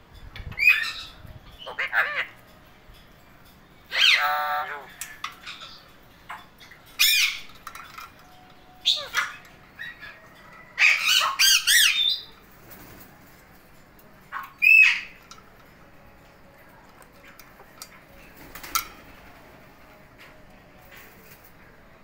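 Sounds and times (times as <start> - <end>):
parakeets calling: 0.6 - 3.0, 3.8 - 7.8, 8.7 - 12.4, 14.3 - 15.4.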